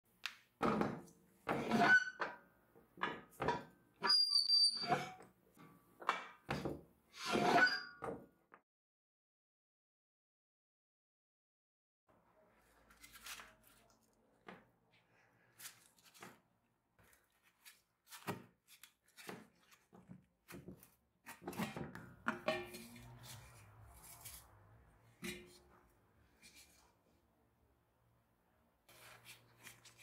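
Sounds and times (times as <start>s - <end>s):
metal lid knocks and scrapes: 21.3s - 23.4s, 25.2s - 25.6s.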